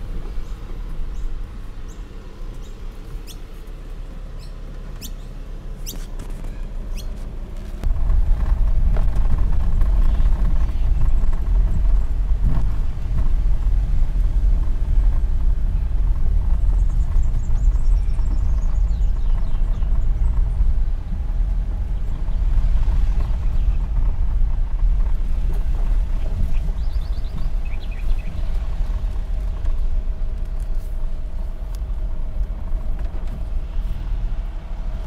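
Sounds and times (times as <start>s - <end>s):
vehicle driving on dirt track: 0.0s - 35.0s
bird chirps: 0.4s - 3.4s, 4.4s - 7.2s, 26.5s - 28.5s.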